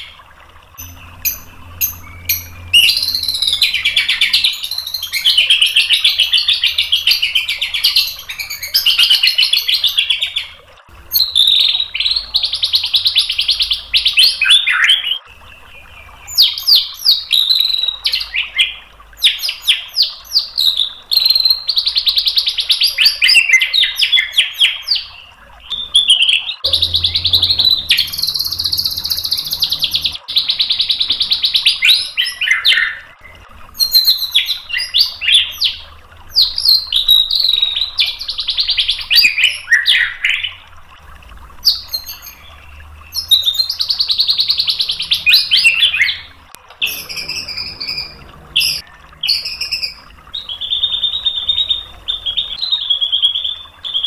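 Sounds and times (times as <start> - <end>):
bird singing buzzy phrases: 0.0 - 22.1, 23.0 - 54.0.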